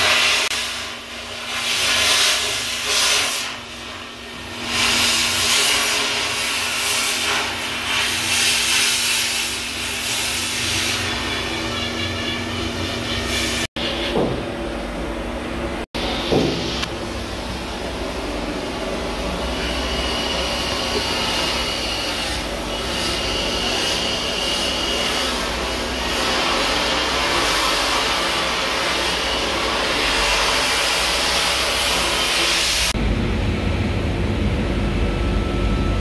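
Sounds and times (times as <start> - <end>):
loud hissing rush of sparks: 0.0 - 14.1, 19.4 - 33.0
faint high whine: 32.9 - 36.0
low steady rumble: 33.0 - 36.0.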